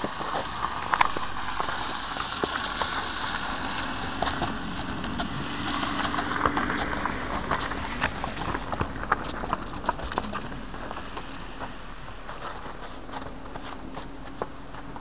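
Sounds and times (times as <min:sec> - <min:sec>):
steady hiss: 0:00.0 - 0:06.5
hooves crunching on icy snow: 0:00.0 - 0:15.0.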